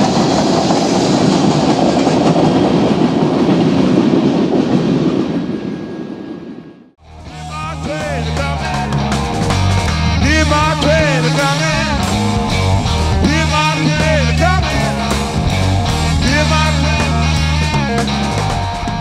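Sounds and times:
rock music: 0:07.0 - 0:19.0.

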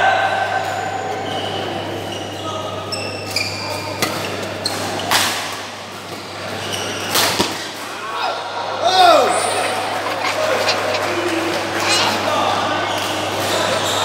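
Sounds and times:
shoes squeaking on court: 0:01.2 - 0:05.2, 0:06.6 - 0:07.6, 0:09.3 - 0:14.0.

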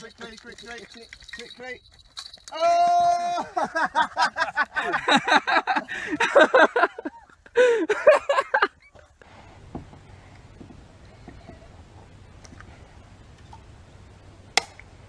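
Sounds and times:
people laughing: 0:02.7 - 0:09.1.

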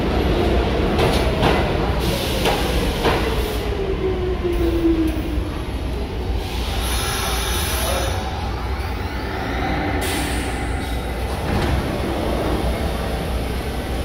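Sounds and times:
train doors sliding open: 0:00.0 - 0:03.8, 0:09.9 - 0:14.0
subway train rumbling: 0:00.0 - 0:14.0
brakes hissing air: 0:06.3 - 0:08.4.

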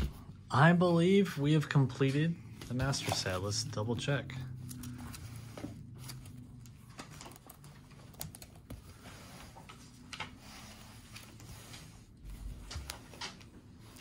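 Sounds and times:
plastic pages crinkling: 0:04.5 - 0:14.0.

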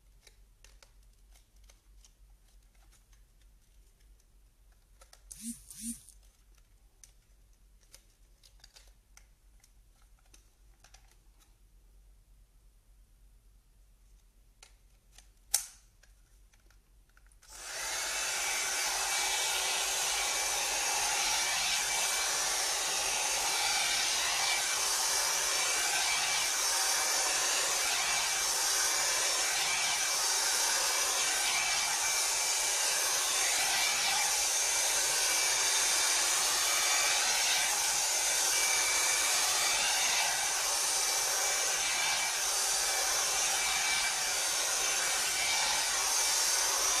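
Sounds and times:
hot air brush fan whining: 0:05.3 - 0:06.0, 0:17.5 - 0:47.0.

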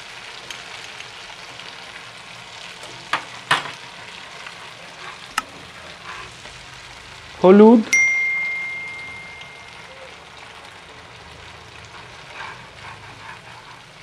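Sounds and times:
seed paste sizzling in a pan: 0:00.0 - 0:14.0
spatula scraping and knocking pan: 0:11.9 - 0:14.0.

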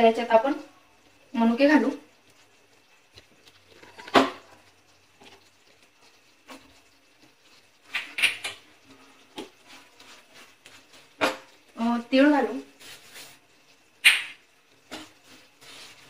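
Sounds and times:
spatula knocking and scraping pan: 0:03.8 - 0:04.6, 0:09.3 - 0:11.6.

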